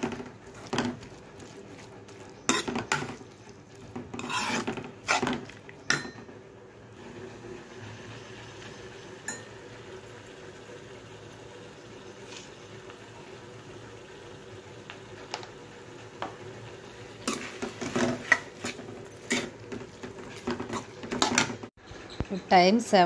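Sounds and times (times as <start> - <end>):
spoon scraping a pan: 0.0 - 6.2, 17.2 - 21.7
faint simmering: 0.0 - 21.8.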